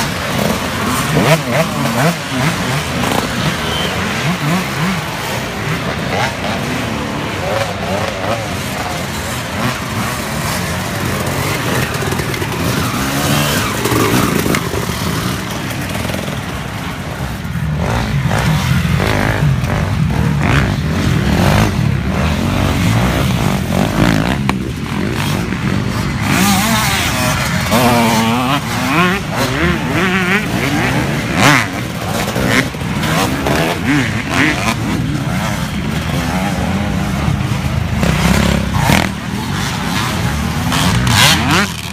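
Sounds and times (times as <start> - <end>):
dirt bike engines revving: 0.0 - 41.9.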